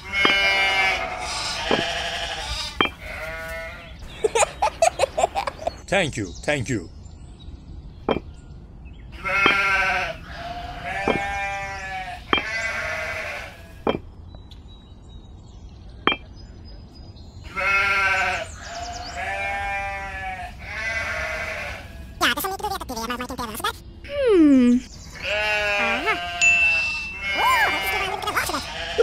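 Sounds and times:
animal bleating: 0.0 - 4.0, 9.2 - 13.8, 17.4 - 22.2, 25.1 - 29.0.

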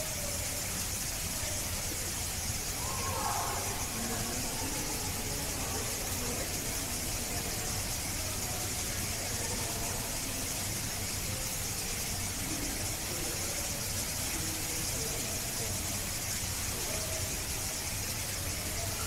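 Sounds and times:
high-pitched hiss: 0.0 - 19.0.

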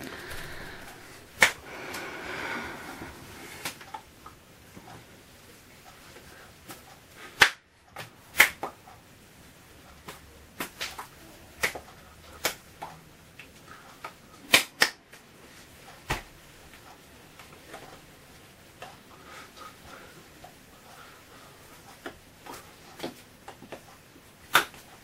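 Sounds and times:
hand claps and snaps: 1.4 - 1.6, 7.4 - 8.8, 10.0 - 15.2, 24.5 - 24.8.

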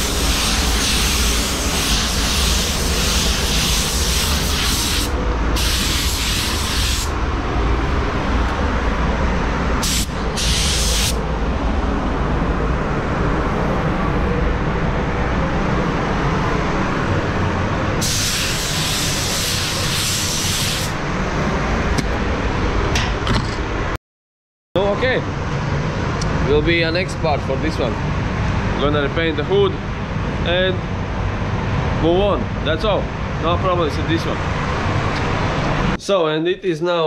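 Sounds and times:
paint spray gun hissing: 0.0 - 7.1, 9.8 - 11.2, 18.0 - 21.0
low rumble of air system: 0.0 - 24.0, 24.8 - 37.0.

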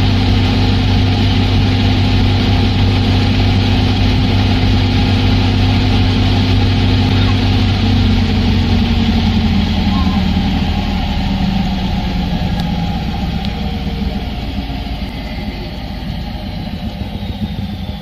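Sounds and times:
washing machine spin rumble: 0.0 - 18.0
thin high whine: 4.5 - 18.0.

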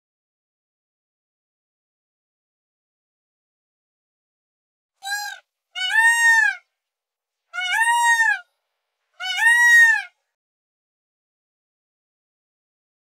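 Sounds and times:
peacock calling: 5.0 - 6.7, 7.6 - 8.5, 9.2 - 10.2.

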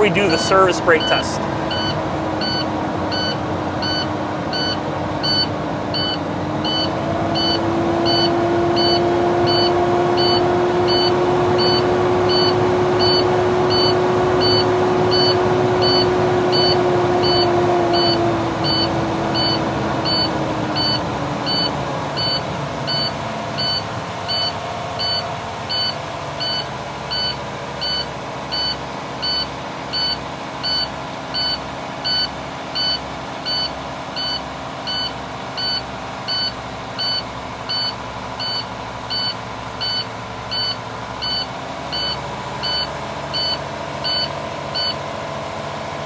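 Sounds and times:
warning buzzer beeping: 0.0 - 45.0
diesel engine idling: 0.0 - 46.0.

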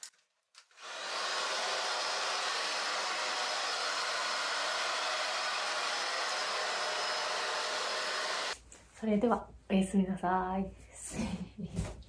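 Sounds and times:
hair dryer running: 0.7 - 8.6.

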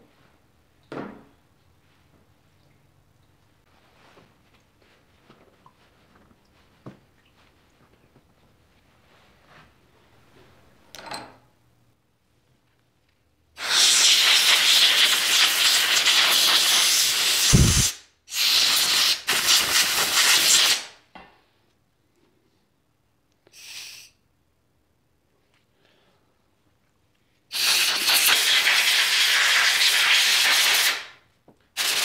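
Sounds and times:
pressurised spray hissing: 13.6 - 19.6, 23.5 - 24.1, 27.5 - 31.0.

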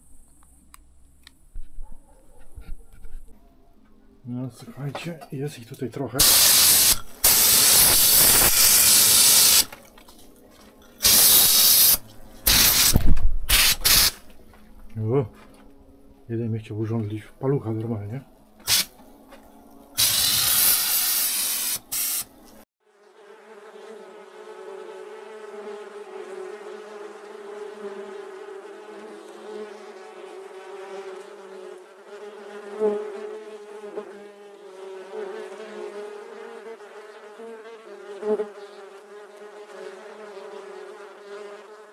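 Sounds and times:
loud hiss: 6.2 - 9.7, 11.0 - 14.2, 18.6 - 19.0, 20.0 - 22.3
wasps buzzing: 6.2 - 10.0, 10.9 - 14.3, 19.8 - 22.5, 23.2 - 41.9.

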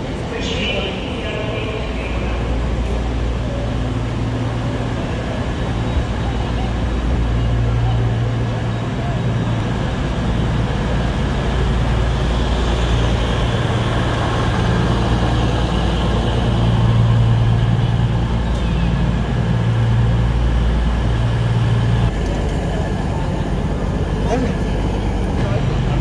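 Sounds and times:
train diesel engines idling: 0.0 - 26.0.

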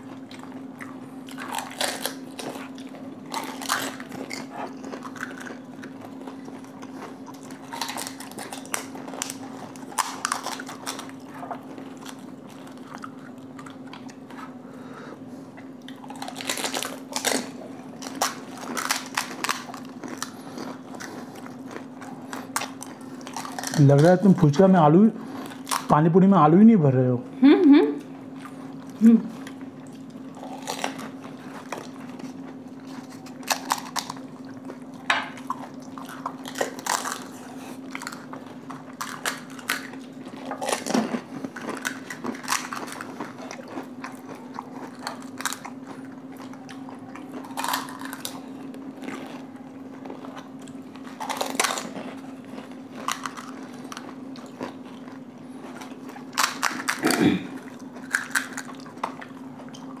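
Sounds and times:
steady low hum: 0.0 - 60.0
crisp shells crunching: 15.9 - 24.7, 30.4 - 34.4, 35.7 - 59.3.

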